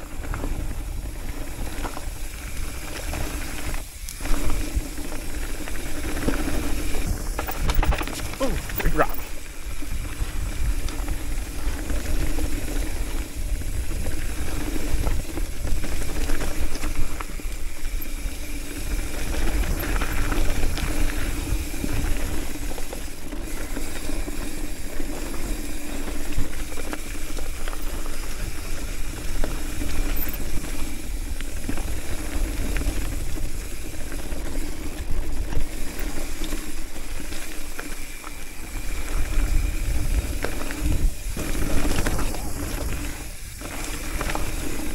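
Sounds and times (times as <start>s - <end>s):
bike rattles and clicks: 0.0s - 44.9s
tyres humming on gravel: 0.0s - 44.9s
wind buffeting microphone: 4.2s - 22.8s, 38.8s - 44.9s.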